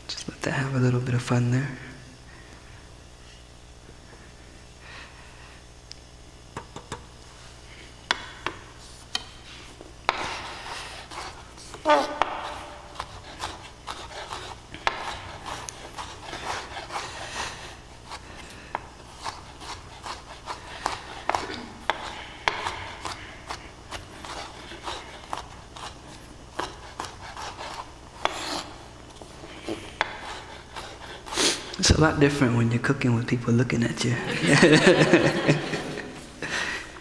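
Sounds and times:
knife chopping on wooden board: 10.1 - 10.4, 11.1 - 17.1, 18.1 - 26.0, 26.6 - 28.7, 30.0 - 31.4
knife blade scraping board: 10.1 - 26.0, 26.6 - 28.8, 29.6 - 31.8.

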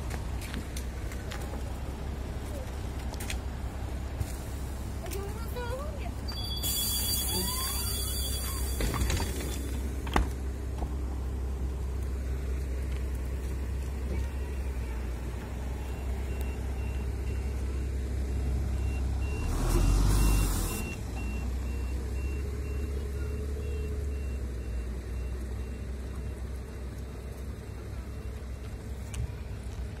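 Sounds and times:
diesel bus engine idling: 0.0 - 30.0
high electronic warning beeps: 6.2 - 9.8, 15.8 - 26.5.

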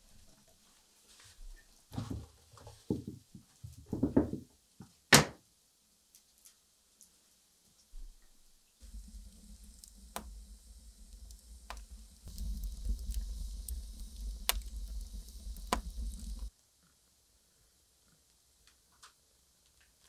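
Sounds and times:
wood fire rumbling and hissing: 8.0 - 16.6
fire crackling and popping: 8.8 - 16.5.

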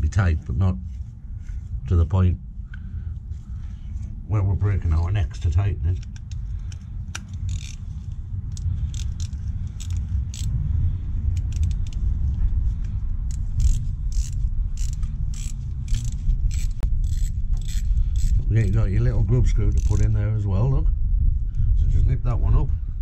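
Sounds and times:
steady low rumble: 0.0 - 23.0
hand tool metal clicks: 6.0 - 7.8, 8.5 - 10.5, 11.4 - 12.0, 13.3 - 18.4.

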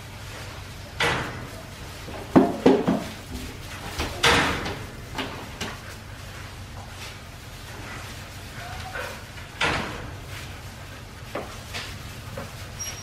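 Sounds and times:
knocks and clatters: 0.9 - 5.9, 8.7 - 10.3.

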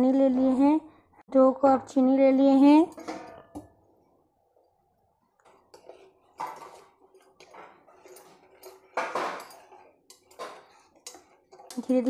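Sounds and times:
spoon scraping pan bottom: 5.6 - 12.0.

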